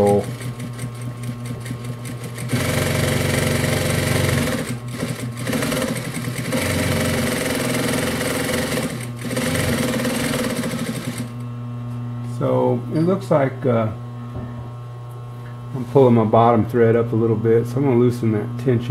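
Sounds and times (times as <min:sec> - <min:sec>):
sewing machine stitching: 0:00.0 - 0:11.4
motor hum: 0:00.0 - 0:18.9.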